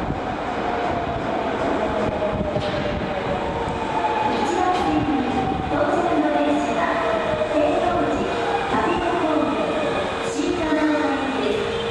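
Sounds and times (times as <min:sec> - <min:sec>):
subway train approaching with whine: 0:00.0 - 0:11.9.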